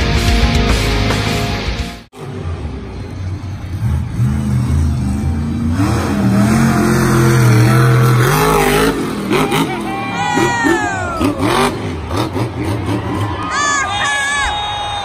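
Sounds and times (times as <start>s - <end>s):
monster truck engine running hard: 2.2s - 13.5s.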